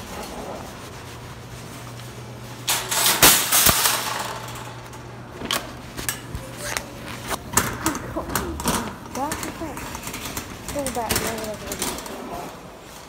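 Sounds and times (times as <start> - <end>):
steady low hum: 0.0 - 13.0
metal shopping carts rattling: 2.6 - 6.6, 7.5 - 13.0.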